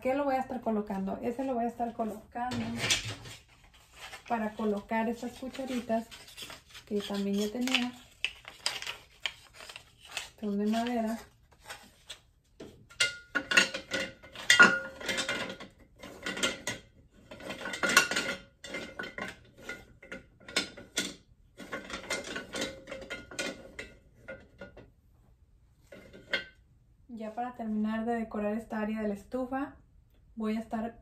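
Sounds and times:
wooden spoons clattering: 2.5 - 11.2, 12.9 - 24.8.

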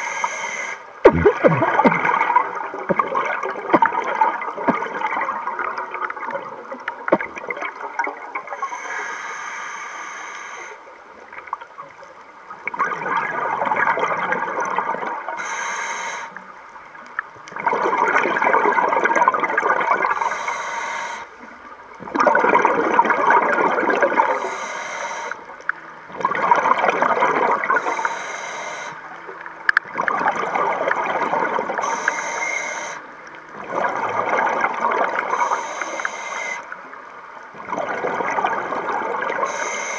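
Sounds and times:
regulator hiss on inhale: 0.0 - 0.9, 8.5 - 11.0, 15.4 - 16.5, 20.1 - 21.6, 24.2 - 25.6, 27.8 - 29.2, 31.8 - 33.2, 35.3 - 37.0, 39.4 - 39.9
bubbling exhale underwater: 1.0 - 6.3, 22.0 - 24.4, 37.6 - 39.9.

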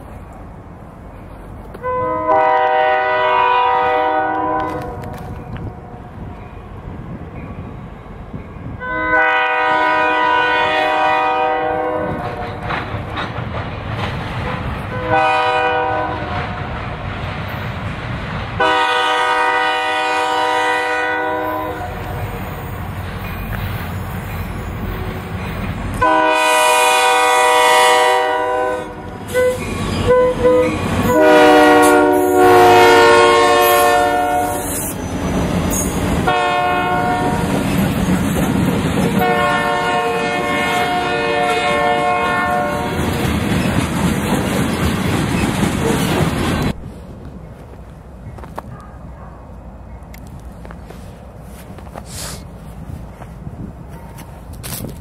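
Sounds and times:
locomotive air horn: 1.8 - 5.2, 8.8 - 12.6, 14.4 - 16.5, 18.6 - 22.4, 26.0 - 35.0, 36.2 - 37.4, 39.2 - 43.0
train wheels rumbling and clattering: 3.8 - 8.8, 9.5 - 19.6, 21.4 - 28.1, 28.9 - 55.0.

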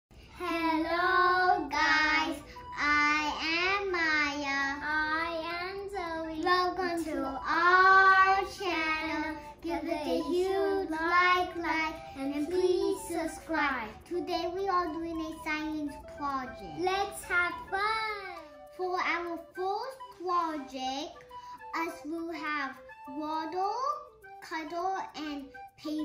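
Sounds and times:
child singing: 0.4 - 20.8.

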